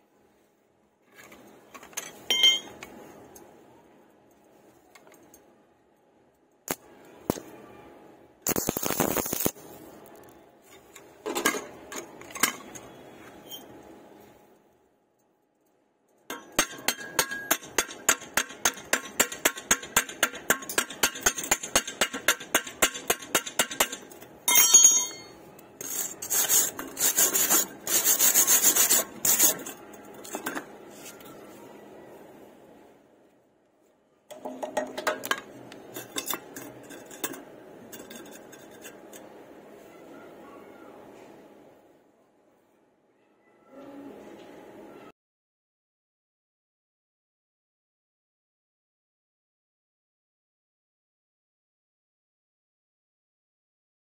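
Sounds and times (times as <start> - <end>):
harsh scraping of weld bead: 8.4 - 11.0, 25.8 - 31.3, 35.8 - 39.4
chipping hammer tapping on steel: 16.3 - 25.3.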